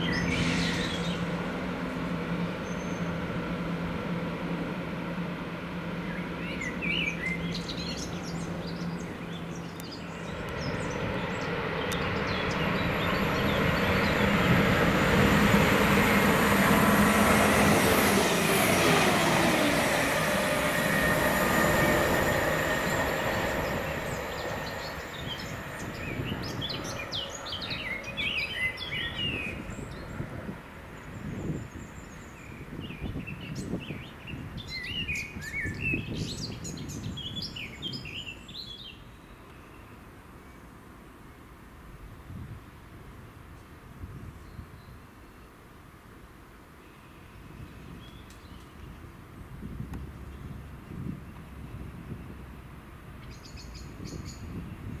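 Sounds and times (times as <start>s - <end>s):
birds chirping: 0.0s - 3.3s, 5.9s - 40.7s
diesel train passing: 0.0s - 32.8s.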